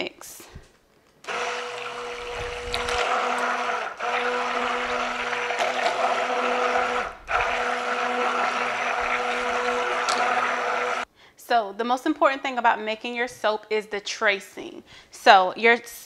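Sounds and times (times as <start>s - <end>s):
hand mixer motor hum: 1.2s - 11.1s
liquid churning: 1.3s - 11.1s.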